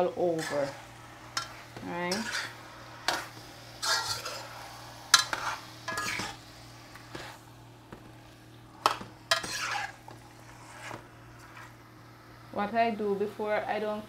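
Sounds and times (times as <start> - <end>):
light sizzling in oil: 0.0 - 14.0
spoon scraping pot: 5.2 - 6.4, 8.8 - 11.7.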